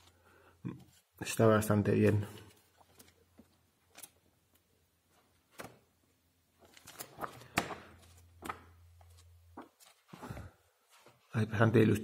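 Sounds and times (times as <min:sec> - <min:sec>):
book pages flipping: 0:02.3 - 0:11.3.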